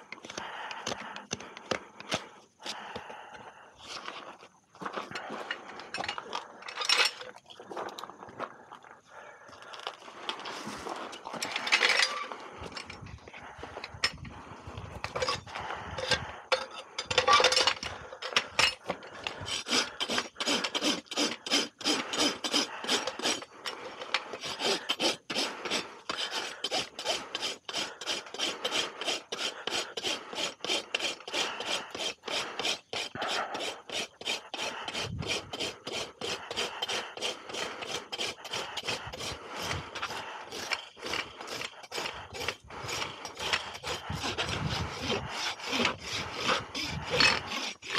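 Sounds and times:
rasp filing hoof: 15.0s - 47.9s.

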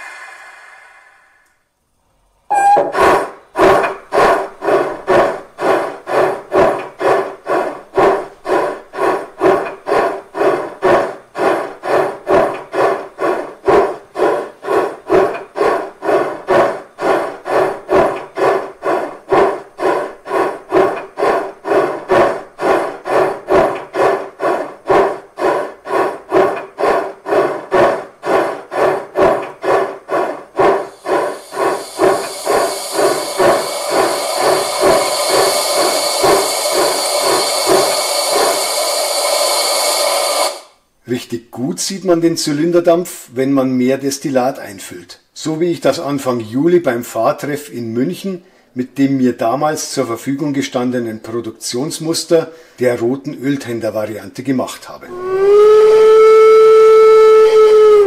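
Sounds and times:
steam engine chuffing from loudspeaker: 0.0s - 1.7s, 2.5s - 40.8s, 48.8s - 58.0s
steam hiss: 0.0s - 1.8s, 2.5s - 40.8s, 55.1s - 58.0s.

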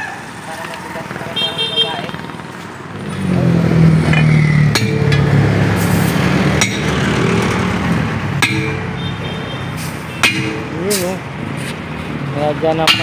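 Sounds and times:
vehicle engine running: 2.0s - 12.8s
hammer striking metal tool: 4.1s - 5.4s, 6.6s - 7.2s, 8.4s - 11.2s, 12.8s - 13.0s.

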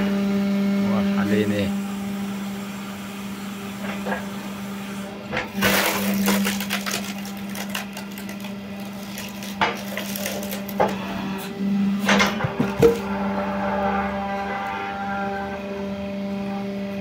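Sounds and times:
machine hum: 0.0s - 17.0s
wood cracking and splintering: 5.5s - 11.0s.

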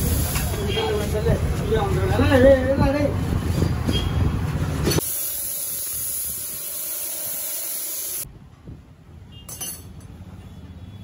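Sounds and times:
loud steady hiss: 0.0s - 1.3s, 5.0s - 8.3s.

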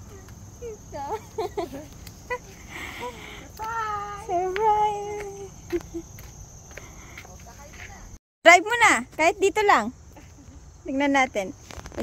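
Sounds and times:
woman laughing breathily: 1.2s - 3.6s.

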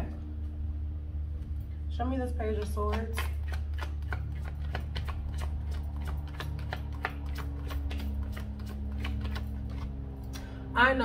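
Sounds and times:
steady low hum: 0.0s - 11.0s
cards being shuffled: 2.6s - 10.0s.

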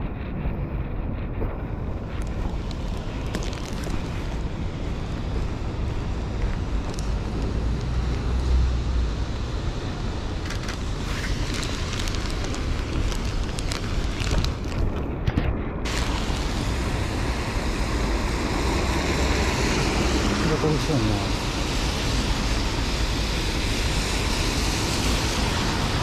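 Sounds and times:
wind rumbling on microphone: 0.0s - 26.0s
road traffic on wet streets: 1.9s - 15.0s, 15.8s - 26.0s
plastic bag crinkling: 2.7s - 4.4s, 10.5s - 15.0s.

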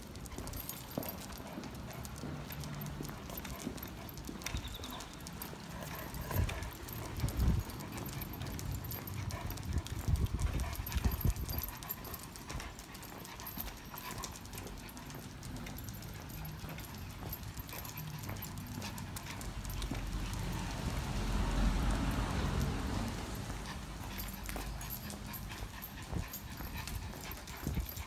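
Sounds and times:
footsteps on brick paving: 23.4s - 28.0s.

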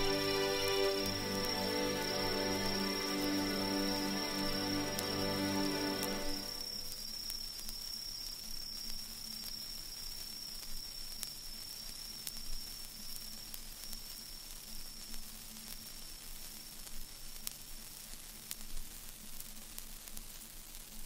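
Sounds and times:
hiss and static: 0.0s - 21.0s.

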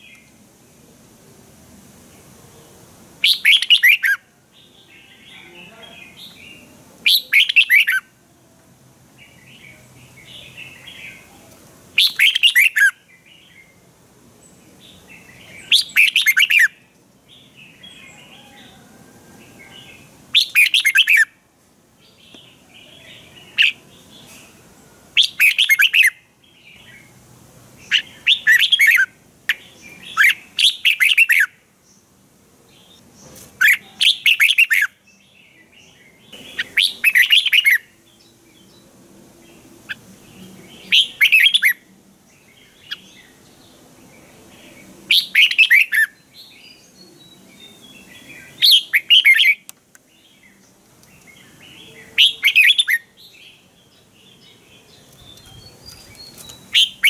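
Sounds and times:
bird singing warbled phrases: 2.1s - 8.2s, 9.2s - 13.8s, 14.4s - 21.4s, 22.0s - 24.6s, 25.2s - 57.0s
soft bird chirps: 32.7s - 57.0s.

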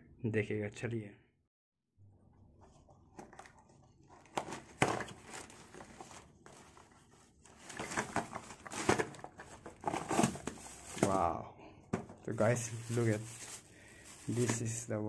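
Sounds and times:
plastic mailer crinkling: 3.1s - 11.3s, 11.9s - 14.8s.

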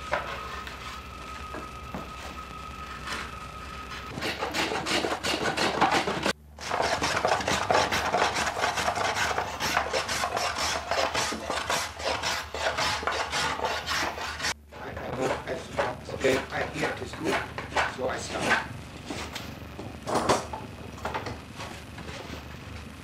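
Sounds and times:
hand tool rasping wood: 3.9s - 18.7s.

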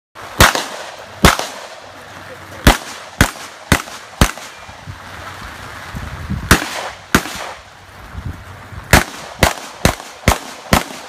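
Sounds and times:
shotgun shots: 0.3s - 1.9s, 2.6s - 4.6s, 6.5s - 7.6s, 8.9s - 11.0s.

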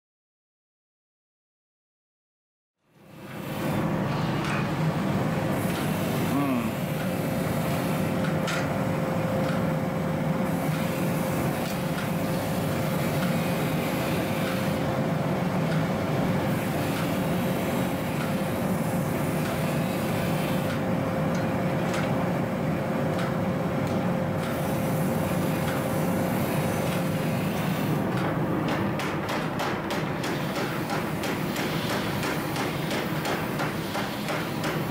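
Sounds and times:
forge burner roaring: 3.0s - 29.4s.

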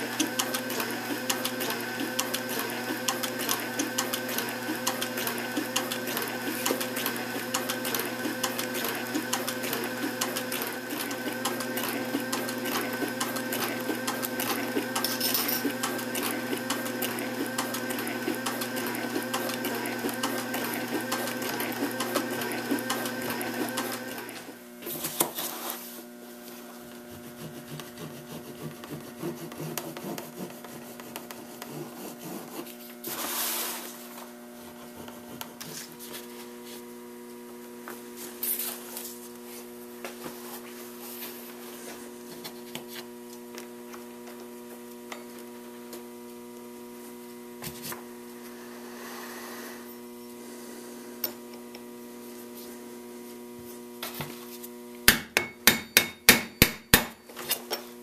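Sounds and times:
sewing machine stitching leather: 0.0s - 24.6s.

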